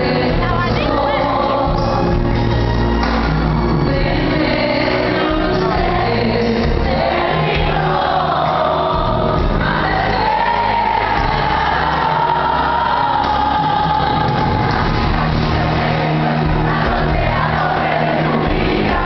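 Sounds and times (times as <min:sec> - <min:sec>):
woman singing a ballad: 0:00.0 - 0:02.3, 0:03.8 - 0:07.4
live pop band: 0:00.0 - 0:19.0
low bass notes: 0:00.0 - 0:19.0.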